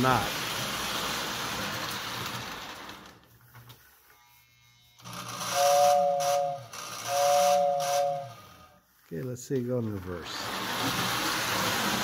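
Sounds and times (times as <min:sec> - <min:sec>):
model train whirring: 0:00.0 - 0:04.3, 0:05.0 - 0:08.8, 0:09.7 - 0:12.0
two-note train whistle: 0:05.5 - 0:08.7.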